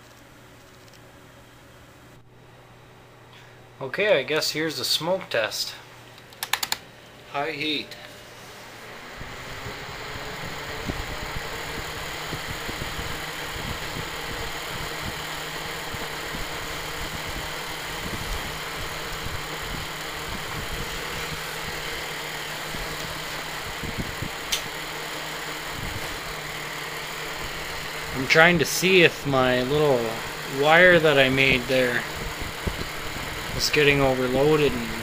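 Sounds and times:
fan heater running: 0.0s - 35.0s
sharp click: 24.5s - 24.7s.

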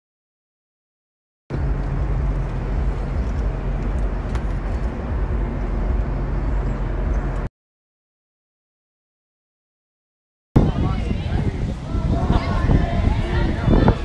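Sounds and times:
city street rumble: 1.5s - 7.5s, 10.6s - 14.0s.

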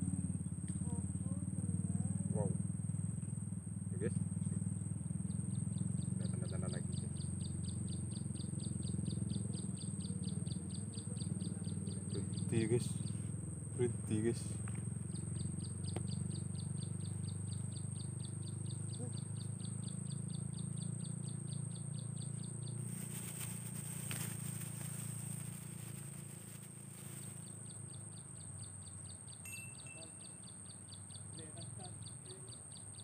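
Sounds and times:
high-pitched insect whine: 0.0s - 33.0s
insects chirping: 0.0s - 33.0s
low hum: 14.5s - 27.8s.

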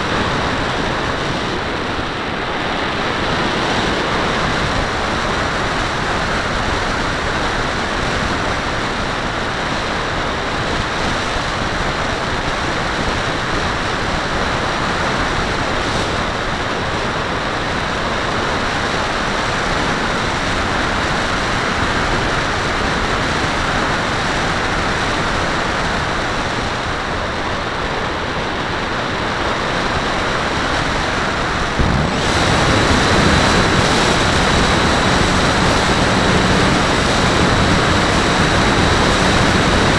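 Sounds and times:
airflow rushing over microphone: 23.9s - 39.9s
model plane motor whine: 31.8s - 39.9s.

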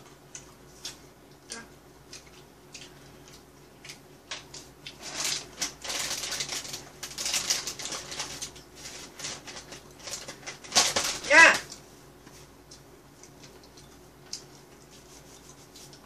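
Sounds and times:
plastic crinkling: 4.3s - 11.4s.

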